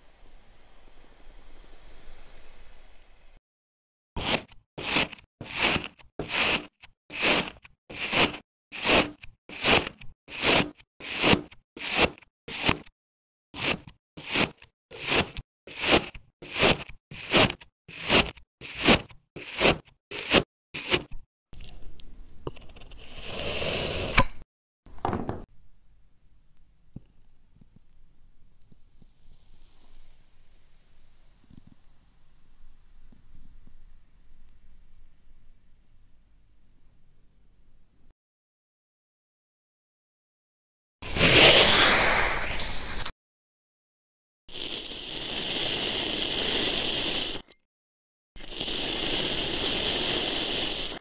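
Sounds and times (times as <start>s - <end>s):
sand gritty hiss: 0.0s - 3.4s, 41.1s - 43.1s, 44.5s - 47.4s, 48.4s - 51.0s
knife slicing into packed sand: 4.2s - 12.9s, 13.6s - 21.2s, 23.2s - 24.4s, 41.0s - 43.1s.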